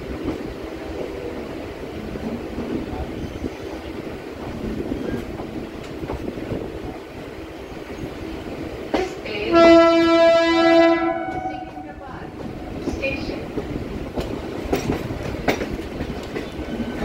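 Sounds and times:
train rumbling: 0:00.0 - 0:17.0
train horn blaring: 0:09.4 - 0:12.9.

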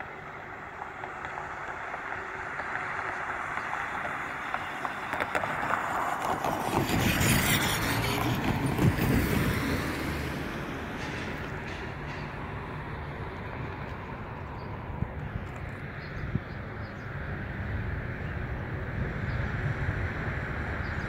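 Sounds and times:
cars driving over crossing: 0:00.0 - 0:21.0
tyres knocking on rails: 0:08.5 - 0:13.3.

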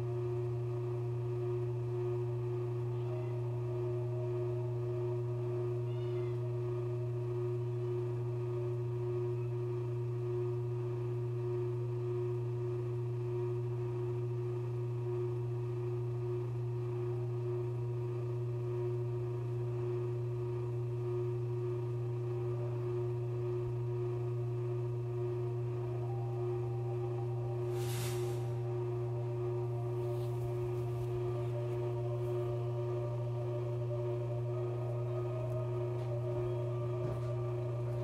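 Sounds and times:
drone music: 0:25.8 - 0:38.0.

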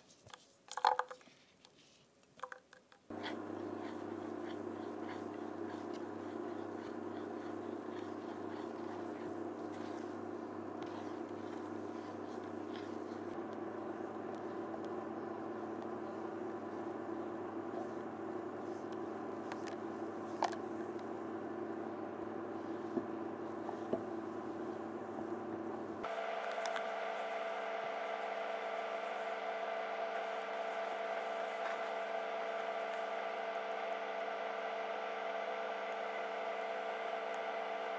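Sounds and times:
spatula stirring and scraping pan: 0:03.1 - 0:20.3
induction hob humming: 0:03.1 - 0:37.9.

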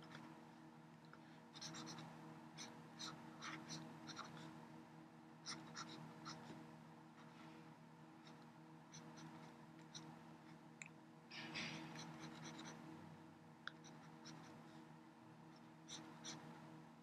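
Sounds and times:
low steady hum: 0:00.0 - 0:17.0
pen stylus scratching tablet: 0:01.6 - 0:04.5, 0:05.4 - 0:06.6, 0:11.6 - 0:12.9, 0:15.9 - 0:16.5.

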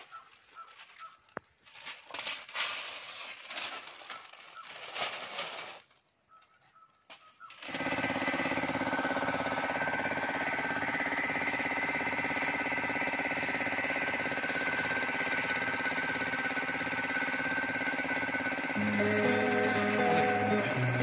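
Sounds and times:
newspaper rustling and tearing: 0:00.0 - 0:06.2
air compressor pulsing: 0:07.6 - 0:21.0.

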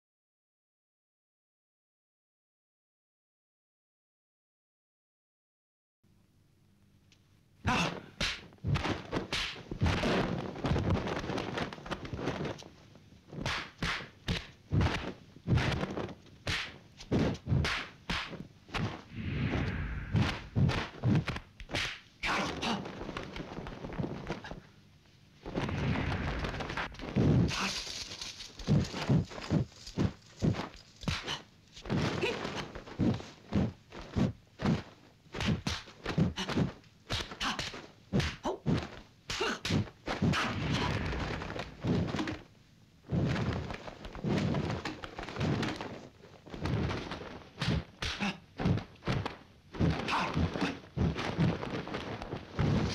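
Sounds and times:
whip-like swishes of arms: 0:07.7 - 0:11.7, 0:13.4 - 0:23.5, 0:25.5 - 0:28.0, 0:28.6 - 0:42.3, 0:46.6 - 0:51.7
noisy rustling: 0:08.4 - 0:52.9
punch and block thuds: 0:13.4 - 0:22.8, 0:35.4 - 0:42.4, 0:47.6 - 0:51.5.

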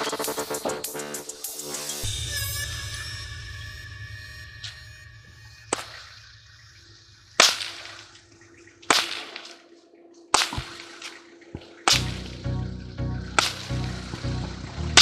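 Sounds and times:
low rhythmic beating: 0:00.0 - 0:03.6, 0:11.4 - 0:15.0
whip cracking: 0:07.4 - 0:08.2, 0:08.8 - 0:12.3, 0:13.4 - 0:13.8.

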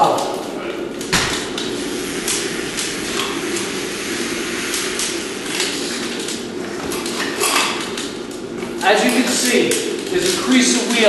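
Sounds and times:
drywall taper mechanical noise: 0:00.0 - 0:11.0.

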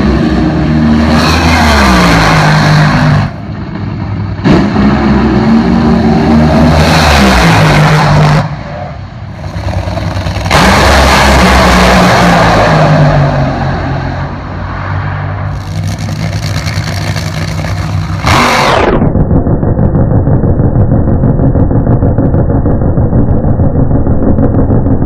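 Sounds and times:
dragster engines roaring: 0:00.0 - 0:25.0.

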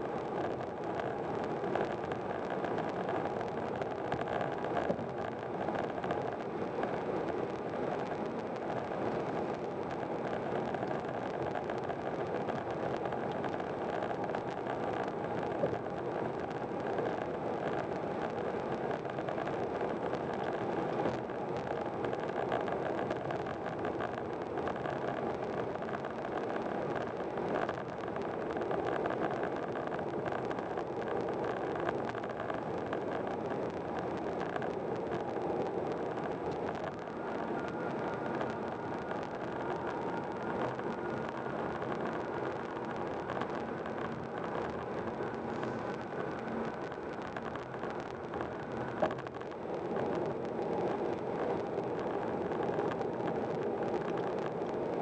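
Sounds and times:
car cruising at highway speed: 0:00.0 - 0:55.0.

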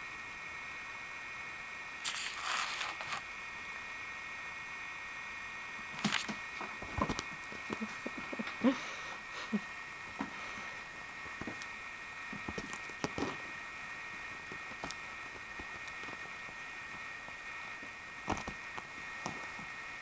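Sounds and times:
kitten paws tapping on wood floor: 0:06.0 - 0:08.5.

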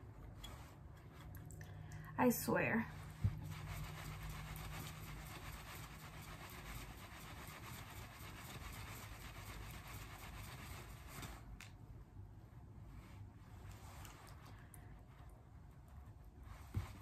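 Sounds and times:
brush swishing on skin: 0:02.5 - 0:11.6, 0:12.8 - 0:14.6, 0:15.2 - 0:17.0.

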